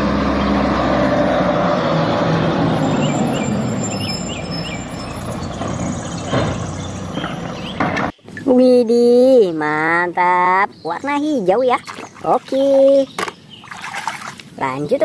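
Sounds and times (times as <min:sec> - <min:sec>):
diesel engine humming: 0:00.0 - 0:11.6.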